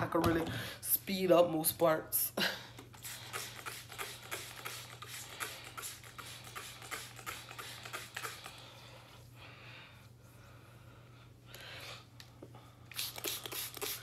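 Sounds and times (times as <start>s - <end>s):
spray bottle spritzing: 2.9s - 8.6s, 12.9s - 14.0s.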